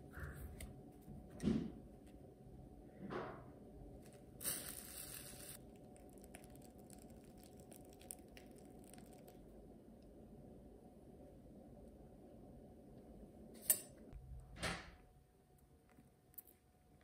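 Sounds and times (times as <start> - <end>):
plastic piping bag crinkling: 4.0 - 9.5.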